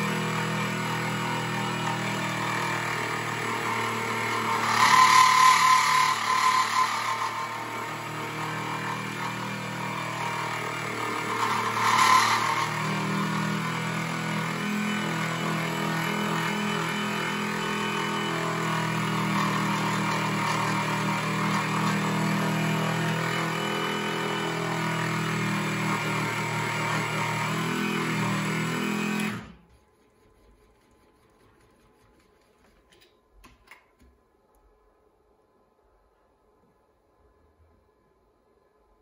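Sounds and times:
milling machine cutting metal: 0:00.0 - 0:29.6.

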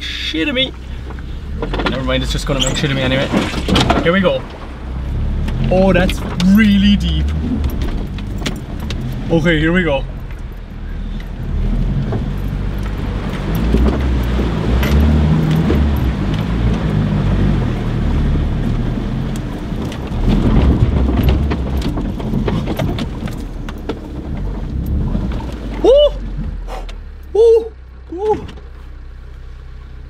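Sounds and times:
water splashing: 0:00.0 - 0:28.5
engine working hard: 0:00.0 - 0:30.0
knocks and clatter of stones: 0:01.0 - 0:17.0, 0:19.3 - 0:26.7.

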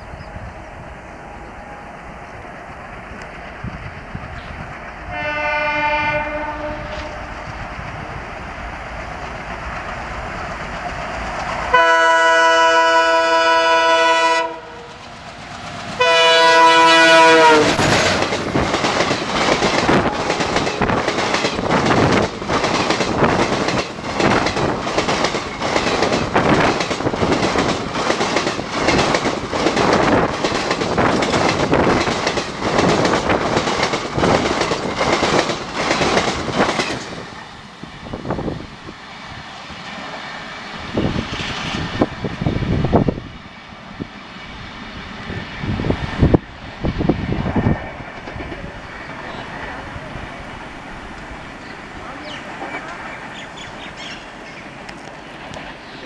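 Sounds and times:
train wheels clattering: 0:02.9 - 0:12.3, 0:14.9 - 0:37.5
locomotive horn blasts: 0:05.1 - 0:07.3, 0:11.7 - 0:15.0, 0:16.0 - 0:17.8.

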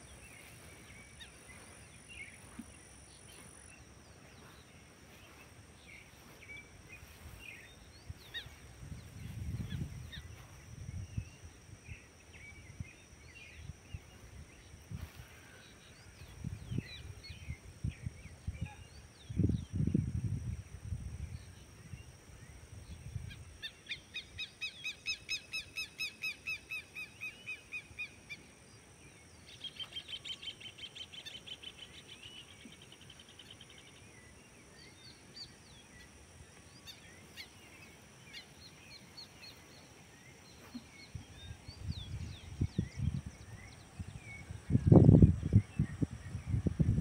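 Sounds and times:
faint steady high tones: 0:00.0 - 0:19.2.

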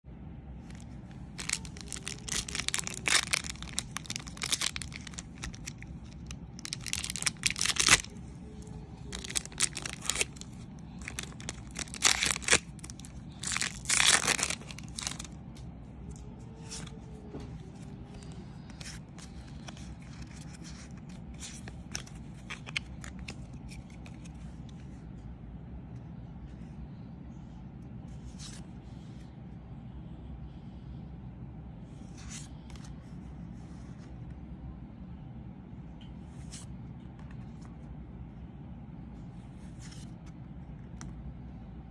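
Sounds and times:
wrapper crinkling and tearing: 0:00.7 - 0:15.4
cards clicking and rustling: 0:00.7 - 0:17.0, 0:17.6 - 0:24.4.

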